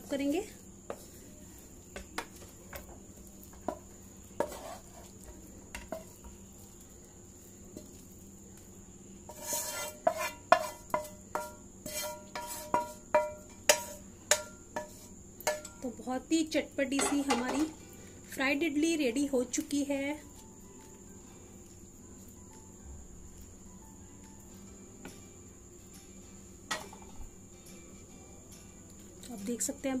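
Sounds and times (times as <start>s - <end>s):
spatula scraping frying pan: 0.9s - 1.3s, 3.5s - 6.4s, 9.2s - 15.7s.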